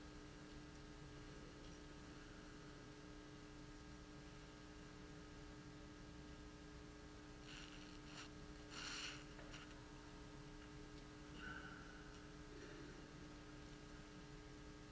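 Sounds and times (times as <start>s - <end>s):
steady low hum: 0.0s - 14.9s
faint rustling: 7.4s - 9.9s.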